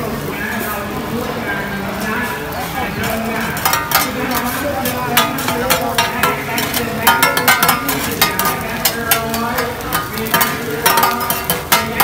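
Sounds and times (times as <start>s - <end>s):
metal spatulas scraping griddle: 2.6s - 12.0s.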